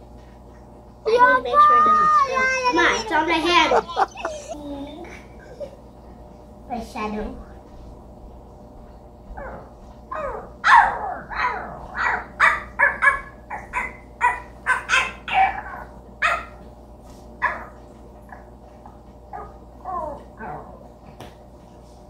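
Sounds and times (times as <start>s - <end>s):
dog barking sharply: 12.0s - 15.6s.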